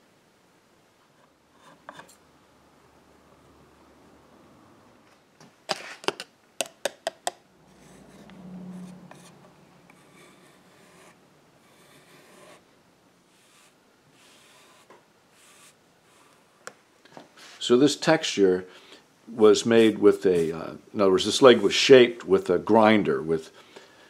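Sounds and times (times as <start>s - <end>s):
sharp clicks and taps: 6.0s - 7.4s.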